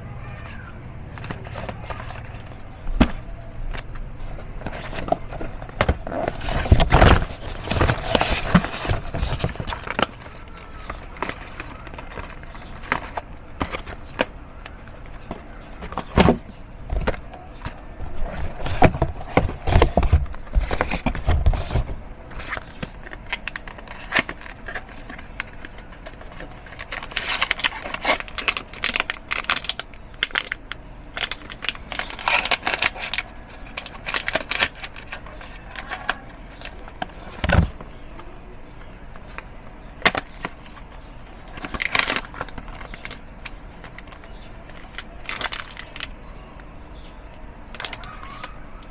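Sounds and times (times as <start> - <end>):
plastic wrap crinkling: 4.4 - 16.1, 22.4 - 37.7, 40.0 - 46.2.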